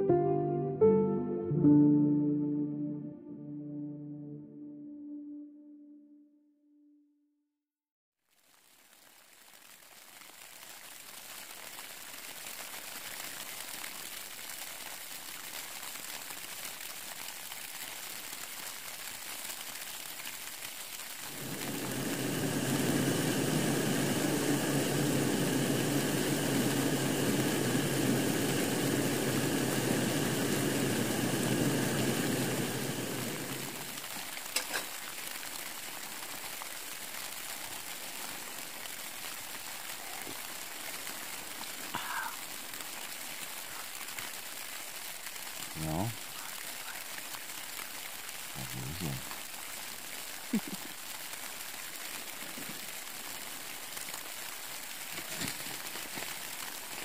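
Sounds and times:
rain pattering on a tarp: 8.2s - 57.0s
gas stove hissing: 21.2s - 35.6s.

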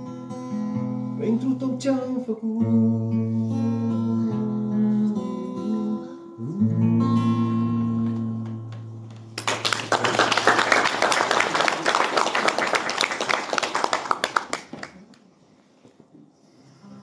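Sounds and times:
audience applause: 9.4s - 15.2s.

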